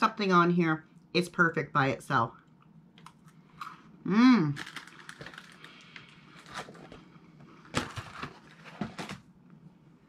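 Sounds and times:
cracker chewing crunches: 0:04.6 - 0:06.8.

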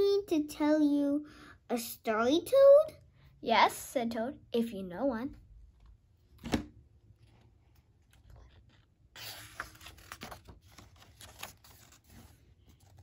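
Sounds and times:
paper page turning: 0:07.2 - 0:13.0.

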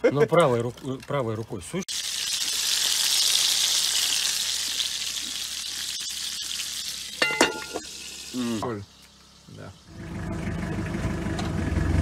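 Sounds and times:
patties sizzling in frying pan: 0:01.6 - 0:09.9
metal lid clinking against pan: 0:07.2 - 0:07.9.

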